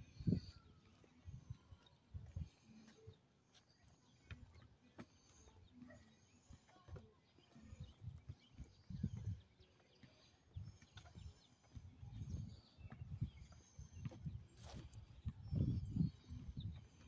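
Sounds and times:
wind buffeting microphone: 0.0 - 2.5, 7.7 - 9.7, 10.5 - 17.0
faint bird chirps: 0.0 - 17.0.

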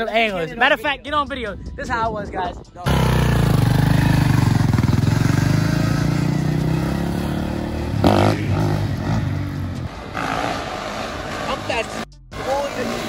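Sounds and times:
dirt bike engine running: 2.9 - 9.6.

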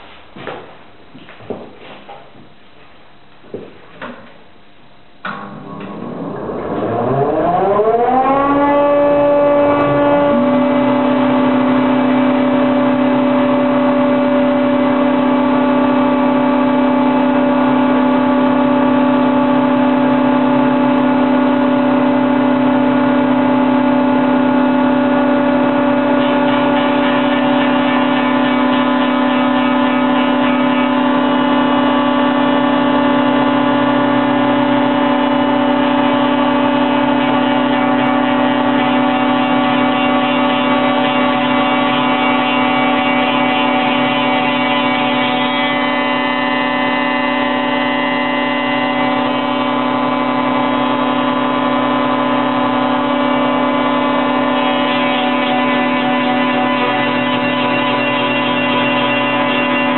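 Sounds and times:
spindle moulder whining: 5.2 - 25.3
cutter cutting wooden board: 5.9 - 22.7, 24.4 - 59.9.

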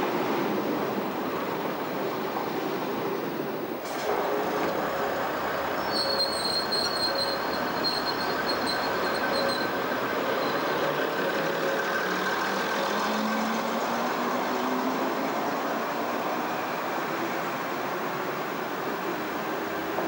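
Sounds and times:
train rumbling on rails: 0.0 - 20.0
high wheel squeal: 5.1 - 14.7.

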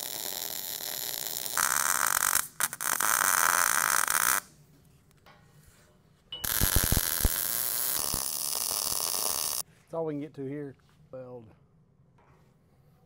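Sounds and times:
welding arc crackling: 0.0 - 4.5, 6.4 - 9.6.

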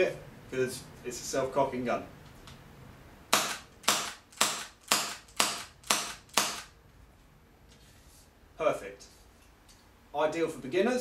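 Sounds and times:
airsoft pistol shots: 3.3 - 6.7.

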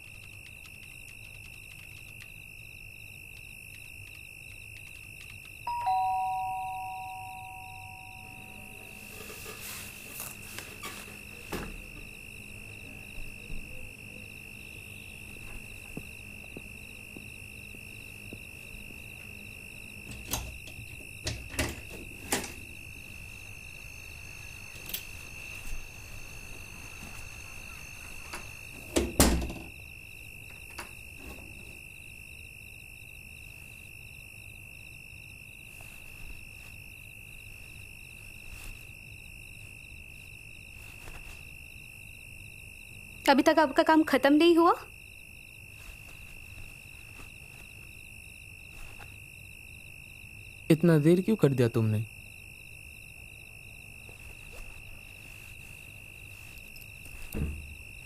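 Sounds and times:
crickets chirring: 0.0 - 58.0
deep thump: 57.3 - 57.8.

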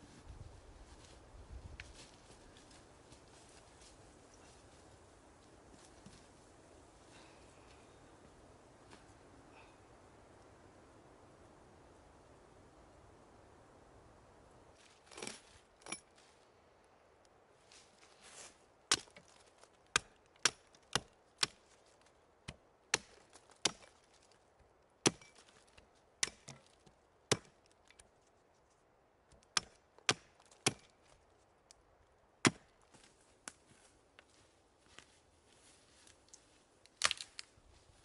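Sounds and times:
hatchet chopping sapling: 18.9 - 24.4, 25.0 - 28.1, 29.3 - 31.2, 32.4 - 32.8.

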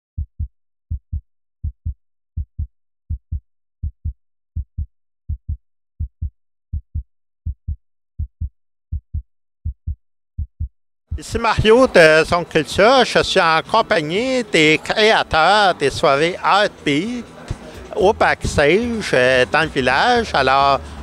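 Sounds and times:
heartbeat thumps: 0.2 - 11.7.

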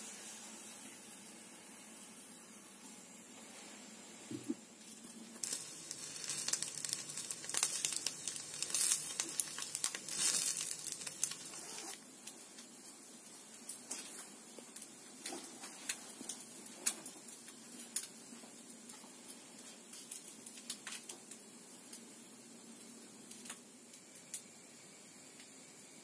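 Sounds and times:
egg sizzling in oil: 4.4 - 22.2.

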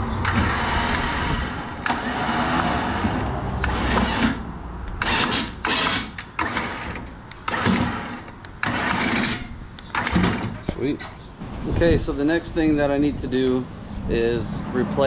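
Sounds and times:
electric winch motor running: 0.2 - 4.4, 5.0 - 10.4.

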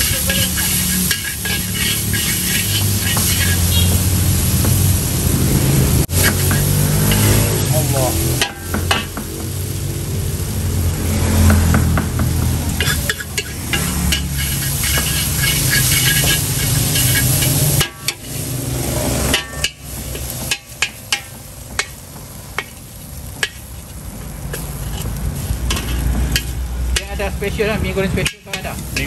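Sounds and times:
metal spatula clanking on wok: 0.0 - 3.8, 6.1 - 7.4, 8.3 - 9.3, 11.7 - 18.5, 19.2 - 22.0, 28.2 - 29.0
food sizzling: 0.0 - 29.0.

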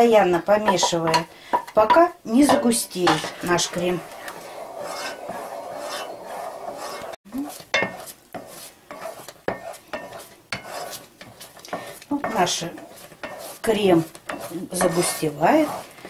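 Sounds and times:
spoon knocking against pot: 0.6 - 2.7
spoon scraping pot: 0.6 - 16.0.

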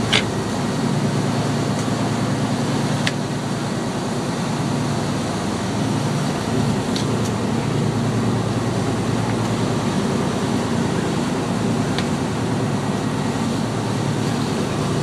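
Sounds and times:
boat engine drone: 0.0 - 15.0
sea noise: 0.0 - 15.0
wind: 0.0 - 15.0.

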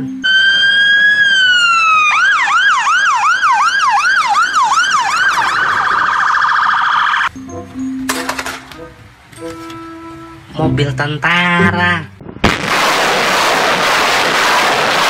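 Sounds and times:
fire engine siren: 0.0 - 7.3.

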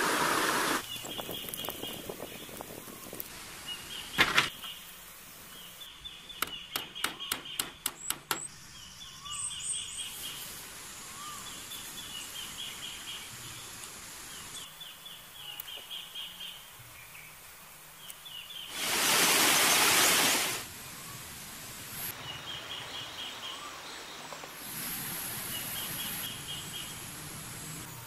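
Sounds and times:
birds chirping: 0.1 - 21.2.

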